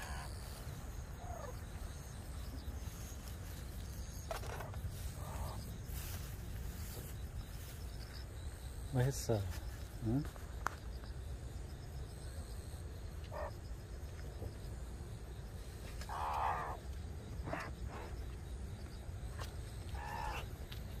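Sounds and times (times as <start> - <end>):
meerkat calls: 0.0 - 0.4, 1.2 - 1.6, 13.2 - 13.6, 16.0 - 18.1, 19.9 - 20.6.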